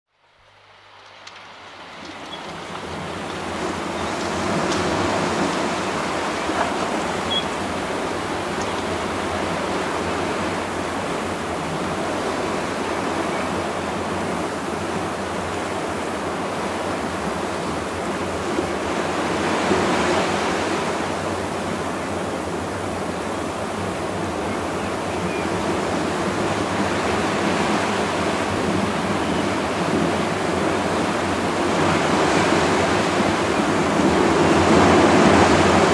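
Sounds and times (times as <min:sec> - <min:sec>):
sea surf rushing: 0:00.6 - 0:35.9.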